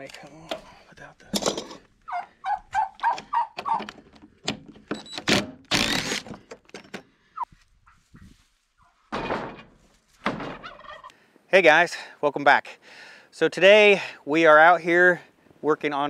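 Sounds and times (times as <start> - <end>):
wood creaking scrape: 2.7 - 7.1
dull wooden thunks: 9.1 - 10.7.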